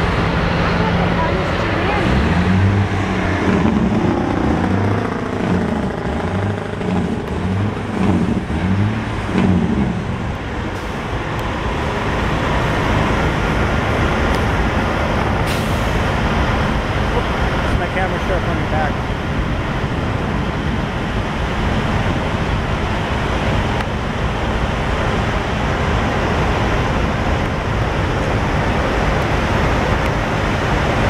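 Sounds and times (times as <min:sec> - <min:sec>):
low throbbing: 0:00.0 - 0:15.4
diesel truck engines running: 0:00.0 - 0:31.0
road traffic passing: 0:00.0 - 0:31.0.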